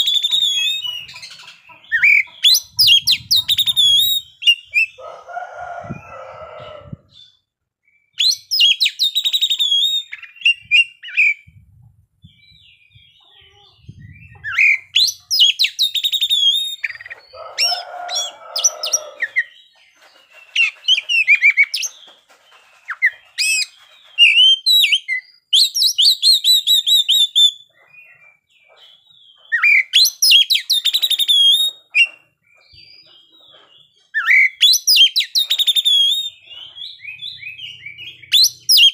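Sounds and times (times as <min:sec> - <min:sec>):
bird whistles and trills: 0:00.0 - 0:05.0, 0:08.0 - 0:11.6, 0:12.2 - 0:38.9.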